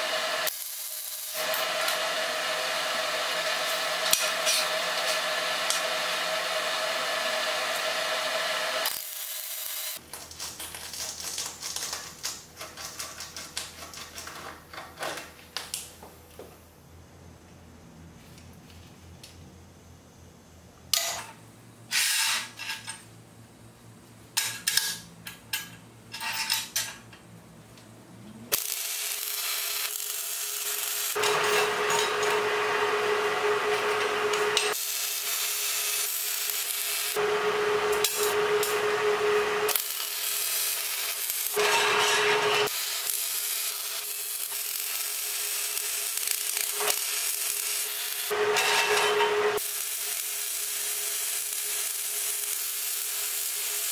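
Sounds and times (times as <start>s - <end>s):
welder crackling hiss: 0.0s - 10.0s, 28.5s - 32.5s, 33.7s - 37.2s, 37.9s - 38.8s, 39.4s - 48.9s, 49.5s - 53.9s.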